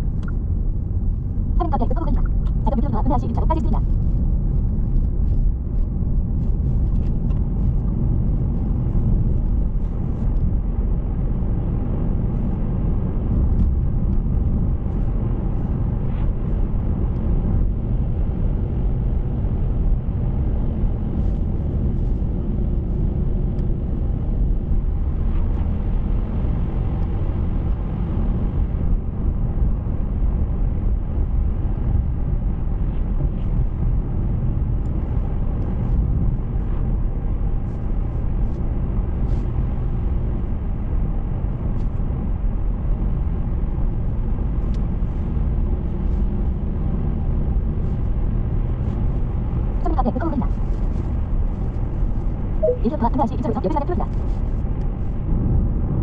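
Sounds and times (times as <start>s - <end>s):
car road and engine noise: 0.0s - 56.0s.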